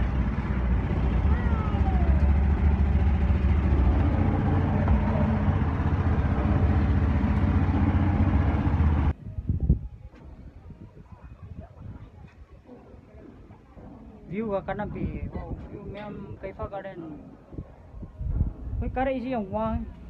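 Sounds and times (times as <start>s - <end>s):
motorboat engine rumbling: 0.0s - 9.1s.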